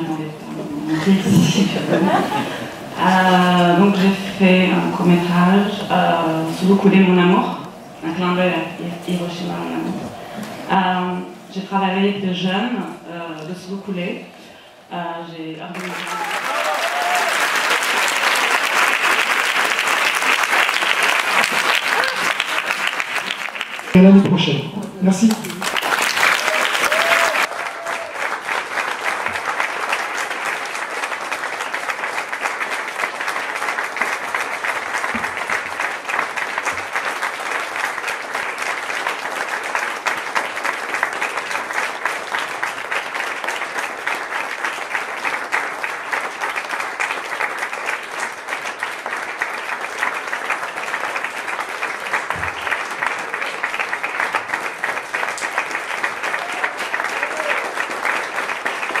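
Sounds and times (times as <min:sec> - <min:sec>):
audience applauding: 0:00.0 - 0:03.9, 0:15.7 - 0:24.0, 0:25.2 - 0:59.0.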